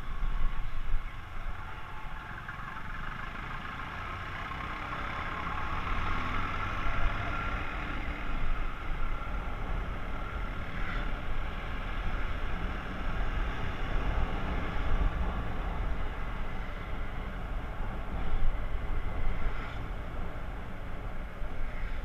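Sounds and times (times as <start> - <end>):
wind rumble on microphone: 6.9 - 22.0.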